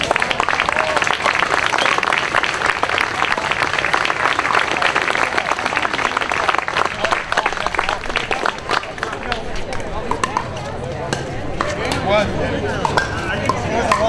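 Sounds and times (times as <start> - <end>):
spectators applauding: 0.0 - 9.8.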